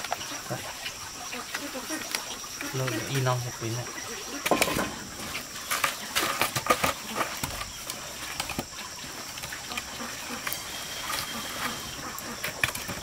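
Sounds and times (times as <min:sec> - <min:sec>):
cooking fire crackling: 0:00.0 - 0:13.0
wood knocking into embers: 0:04.4 - 0:08.7.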